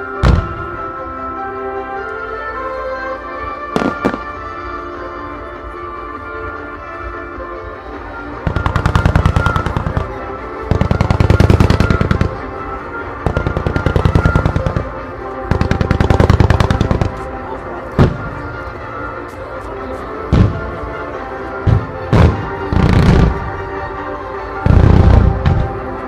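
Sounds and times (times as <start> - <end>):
music: 0.0 - 26.0
rapid-fire firework volleys: 8.5 - 17.4.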